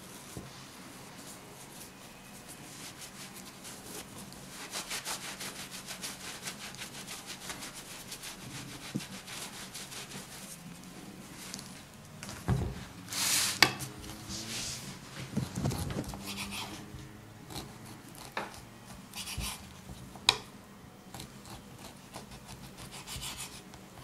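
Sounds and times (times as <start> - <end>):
cloth rubbing on meat: 0.0 - 11.8, 14.2 - 16.9.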